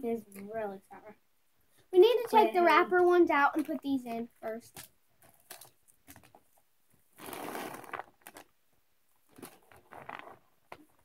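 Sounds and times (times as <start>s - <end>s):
plastic packaging crinkling: 4.7s - 8.6s, 9.2s - 11.0s.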